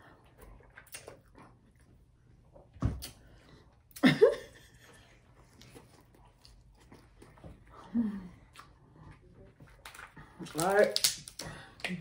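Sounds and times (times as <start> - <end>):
shells cracking apart: 10.5 - 12.0.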